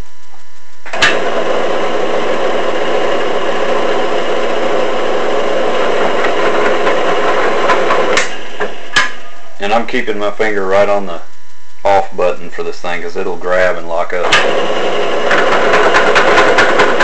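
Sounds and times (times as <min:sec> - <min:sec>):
drill press drilling into metal: 0:00.9 - 0:09.2, 0:14.2 - 0:17.0.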